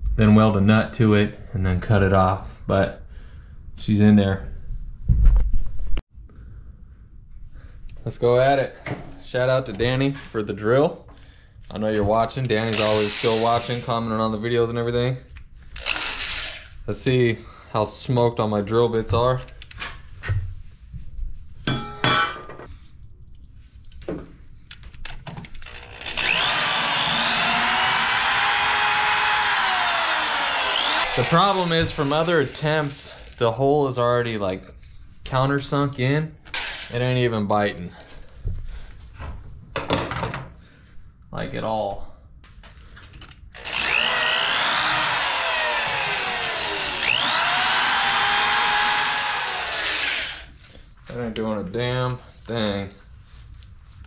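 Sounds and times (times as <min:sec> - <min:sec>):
drill bit grinding on metal: 0:12.7 - 0:13.9, 0:15.8 - 0:16.7, 0:25.6 - 0:33.3, 0:43.6 - 0:50.5
electric drill whining: 0:12.7 - 0:13.9, 0:15.8 - 0:16.7, 0:25.6 - 0:33.3, 0:36.5 - 0:36.9, 0:43.6 - 0:50.6
drill handling clicks and rattles: 0:24.7 - 0:32.1, 0:43.1 - 0:50.4.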